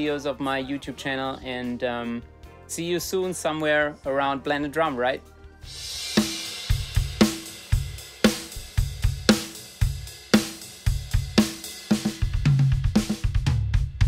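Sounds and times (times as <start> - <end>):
hi-hat: 5.7 - 12.4
bass drum: 5.7 - 14.0
tom drum fill: 5.7 - 14.0
snare drum backbeat: 6.0 - 14.0.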